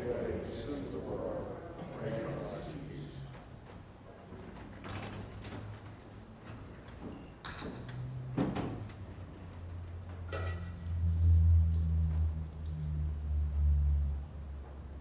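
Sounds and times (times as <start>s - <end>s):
low steady hum: 8.8s - 15.0s
metal vessels knocking and clinking: 10.3s - 10.8s.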